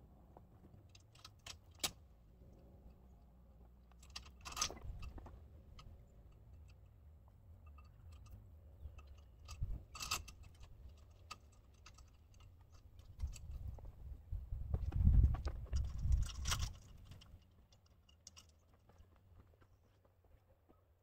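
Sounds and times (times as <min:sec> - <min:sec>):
metal clicks and knocks: 0:03.8 - 0:07.0, 0:07.6 - 0:13.9, 0:15.4 - 0:19.1.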